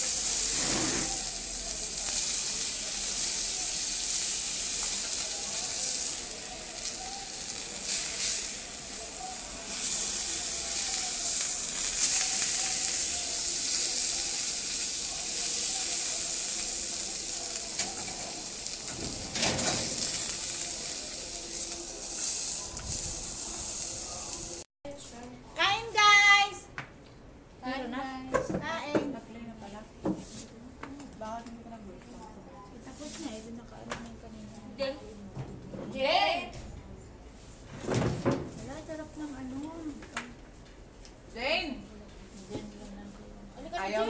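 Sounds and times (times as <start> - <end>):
fish sizzling on a grill pan: 0.0 - 24.6.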